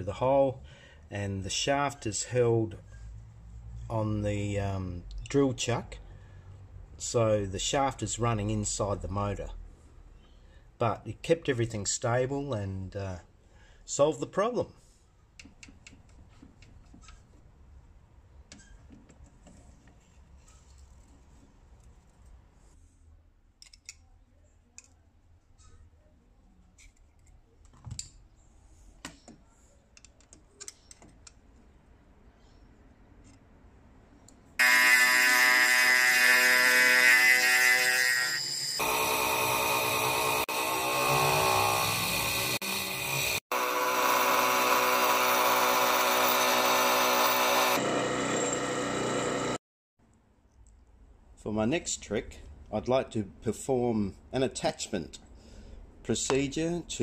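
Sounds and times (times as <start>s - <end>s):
lathe motor hum: 34.6s - 49.6s
milling machine cutting aluminium: 34.6s - 49.6s.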